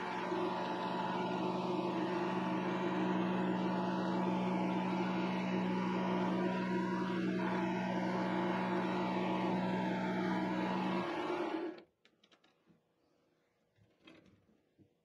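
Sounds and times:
lathe motor and gear whine: 0:00.0 - 0:11.8.

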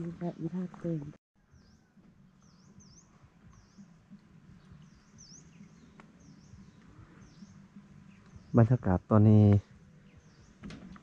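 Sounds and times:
small bird chirping: 0:00.1 - 0:08.8.

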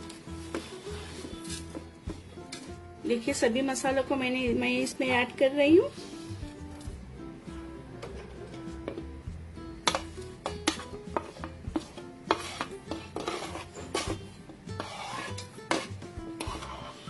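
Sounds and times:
metal spoon scraping a plate: 0:10.6 - 0:17.0.

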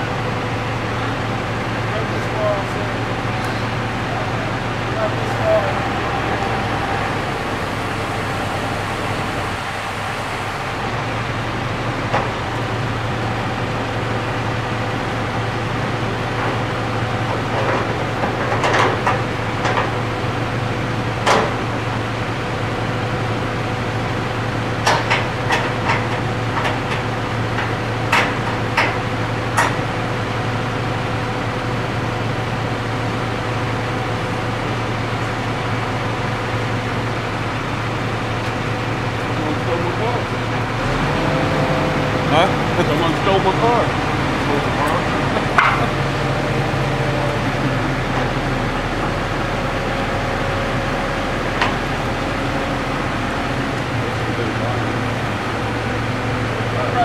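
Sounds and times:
crane engine humming: 0:00.0 - 0:57.0
sharp knocks and clicks: 0:24.8 - 0:29.8.

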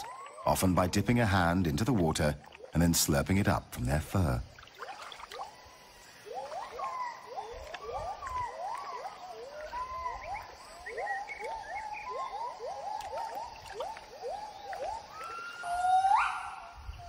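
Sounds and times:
gibbon whooping calls: 0:05.4 - 0:17.0.

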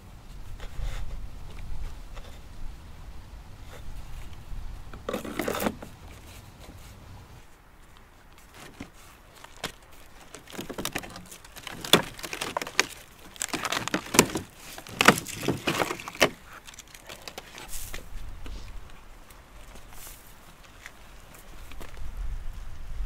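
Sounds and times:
bone scraping on gravel: 0:05.0 - 0:07.0, 0:08.4 - 0:19.0.

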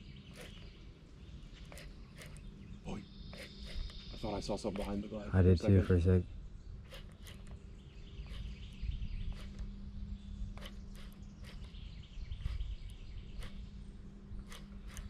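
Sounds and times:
low hum: 0:05.4 - 0:15.0.

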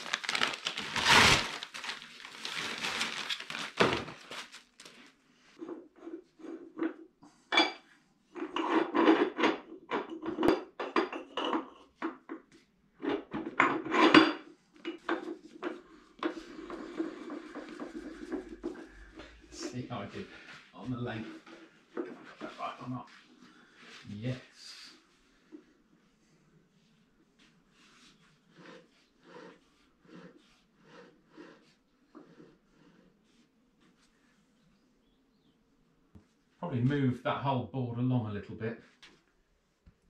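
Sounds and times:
paper rustling: 0:00.0 - 0:05.2.

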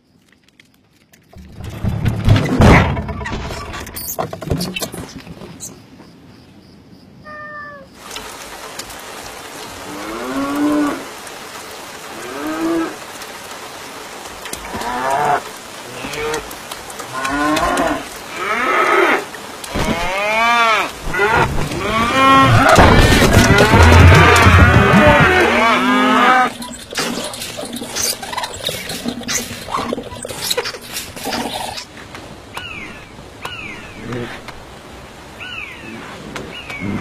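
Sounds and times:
steady rain: 0:05.2 - 0:37.0
cows mooing: 0:17.1 - 0:27.9.

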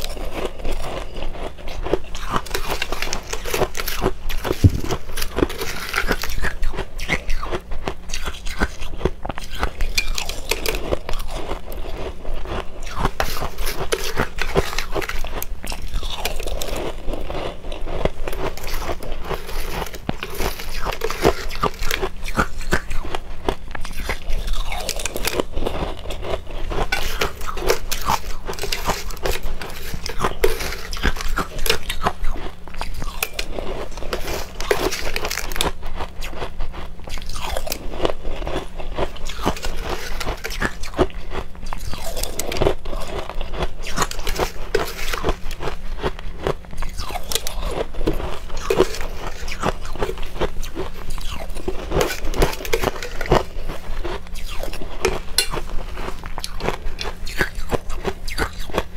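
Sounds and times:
metal spoon in ice in bowl: 0:00.0 - 0:07.6, 0:08.2 - 0:17.3, 0:18.2 - 0:23.2, 0:23.8 - 0:35.8, 0:39.0 - 0:45.7, 0:46.8 - 0:58.9
person chewing ice: 0:00.0 - 0:58.9.

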